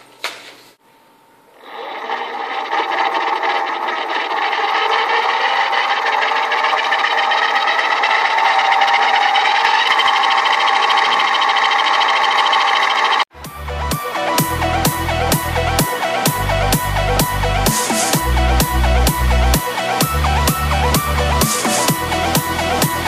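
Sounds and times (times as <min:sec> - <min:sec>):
electric motor gear whine: 0:01.5 - 0:13.3.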